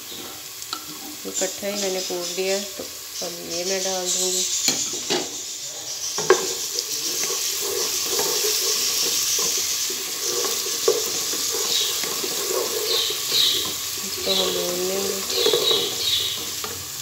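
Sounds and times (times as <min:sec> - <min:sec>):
onions sizzling in hot oil: 0:00.0 - 0:17.0
wooden spatula scraping pot: 0:06.1 - 0:16.9.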